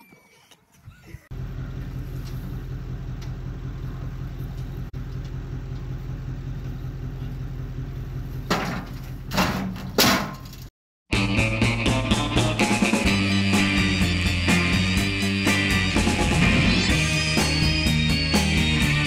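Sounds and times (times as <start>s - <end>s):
loader engine running: 1.3s - 9.9s, 11.2s - 19.0s
harsh engine surges: 11.2s - 19.0s.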